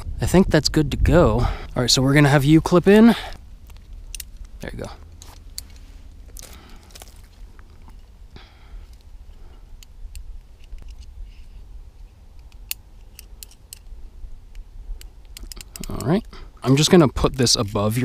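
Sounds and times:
rope and gear rustling: 2.4 - 14.0
carabiners clicking: 3.7 - 8.2, 8.9 - 11.6, 12.3 - 17.9.

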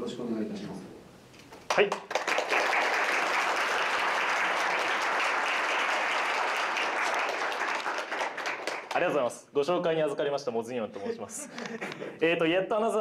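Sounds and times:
audience applauding: 1.7 - 9.2.

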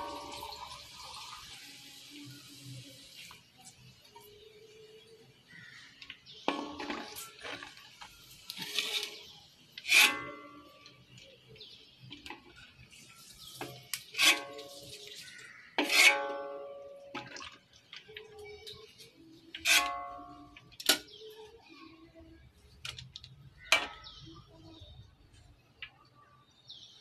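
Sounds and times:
meat frying in oil: 0.0 - 3.6
metal utensil scraping pan: 6.5 - 11.2, 12.1 - 17.4, 19.5 - 21.0, 23.7 - 24.2.

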